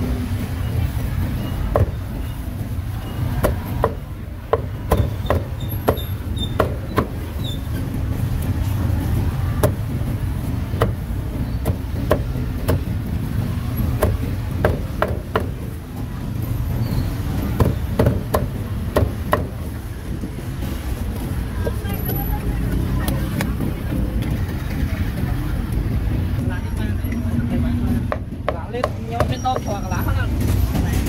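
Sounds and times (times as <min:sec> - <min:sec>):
cleaver chopping on wooden block: 0:03.4 - 0:07.2, 0:11.6 - 0:12.9, 0:14.0 - 0:15.6, 0:17.6 - 0:19.6.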